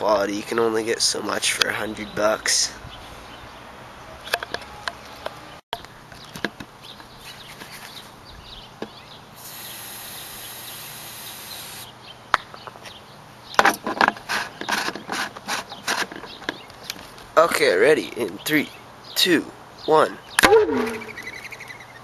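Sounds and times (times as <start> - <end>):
steady hiss: 9.3 - 11.9.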